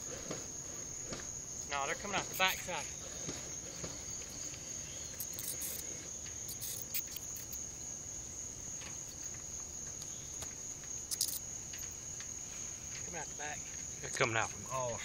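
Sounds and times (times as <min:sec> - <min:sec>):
insects chorus: 0:00.0 - 0:15.0
faint ticks: 0:02.3 - 0:07.7, 0:08.7 - 0:15.0.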